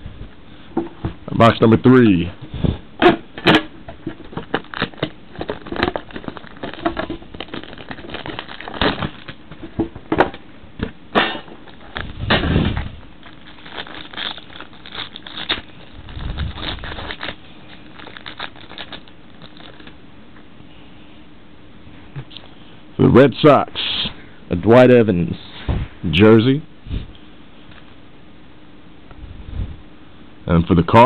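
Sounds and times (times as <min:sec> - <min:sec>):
heavier handling noise: 0:02.4 - 0:13.4
plastic wrapping crinkling: 0:03.9 - 0:09.9, 0:11.6 - 0:20.0.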